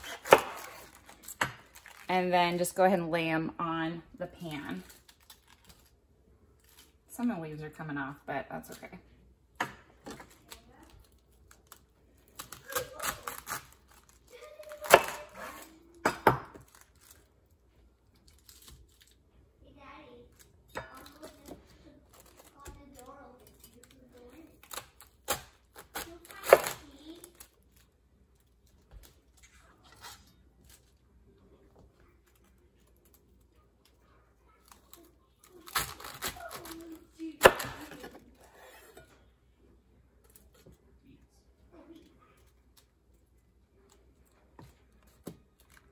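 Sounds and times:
knife crunching through cabbage: 11.4 - 15.8, 34.7 - 39.0.

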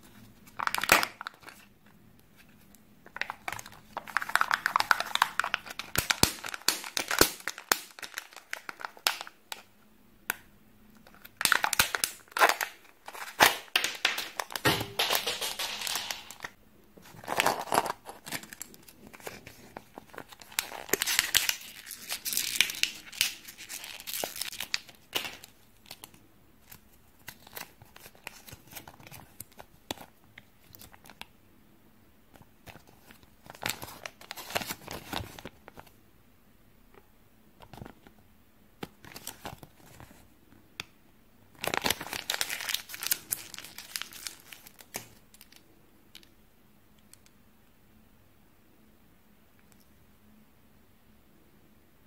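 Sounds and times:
packaging crinkling and tearing: 0.4 - 1.7, 2.4 - 9.7, 11.0 - 31.3, 32.6 - 35.9, 38.8 - 40.2, 41.5 - 45.6
plastic capsule snapping: 11.4 - 16.5.

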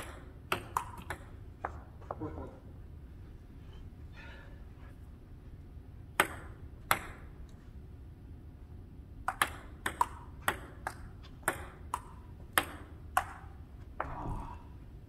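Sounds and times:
table tennis ball clicks: 0.0 - 1.8, 6.2 - 7.3, 9.2 - 13.5.

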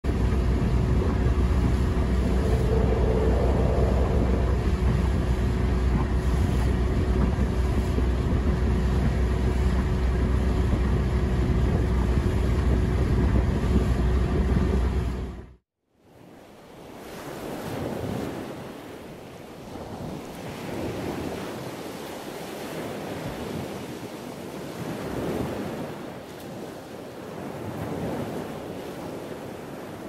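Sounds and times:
wind on microphone: 0.0 - 15.6, 16.8 - 30.0
water noise: 0.0 - 30.0
motorboat engine drone: 0.1 - 15.6.

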